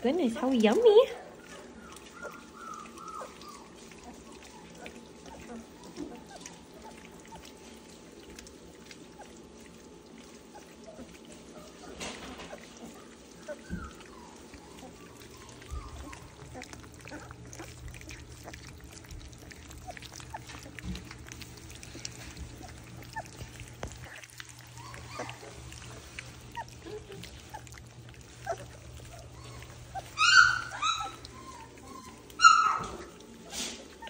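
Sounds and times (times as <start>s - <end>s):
puppies lapping and slurping: 0.0s - 34.0s
puppy squeals: 1.0s - 7.5s, 10.5s - 18.8s, 22.2s - 34.0s.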